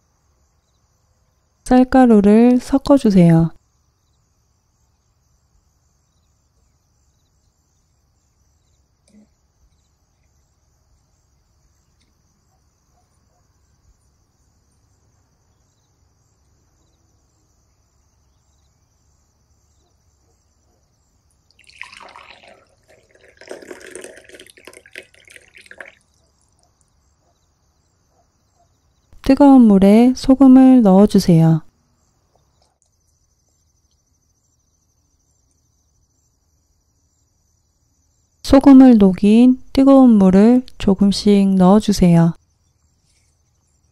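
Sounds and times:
faint steady hiss: 0:00.0 - 0:43.9
water pouring into a glass: 0:21.5 - 0:26.6.

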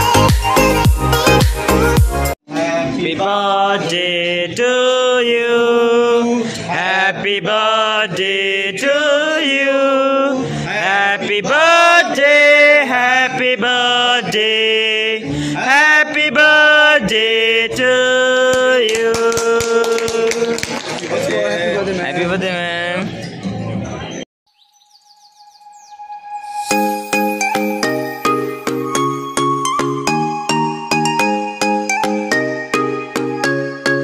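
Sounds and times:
man singing: 0:02.4 - 0:20.5.

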